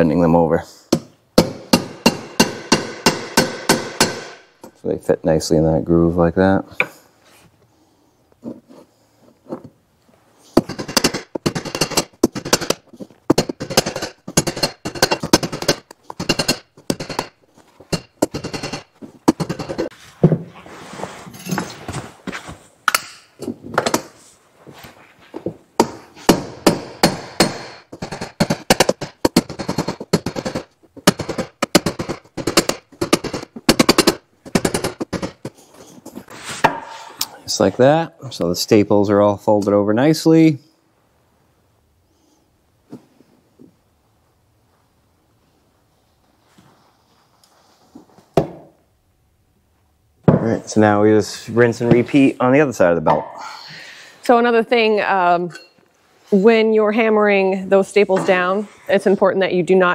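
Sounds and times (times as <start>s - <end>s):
hammer striking steel bar: 1.4s - 4.5s.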